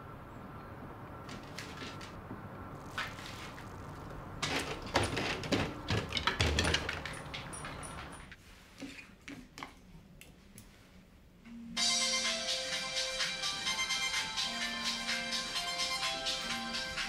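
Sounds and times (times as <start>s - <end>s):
dog eating clicks and knocks: 4.6s - 8.3s.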